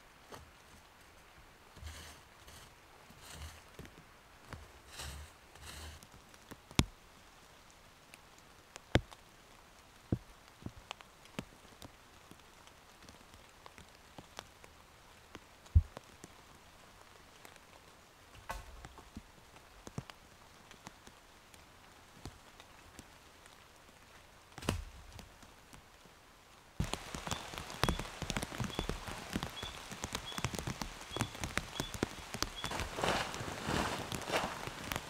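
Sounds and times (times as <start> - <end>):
raindrops falling: 0.0 - 35.0
footsteps in wet leaf litter: 26.8 - 35.0.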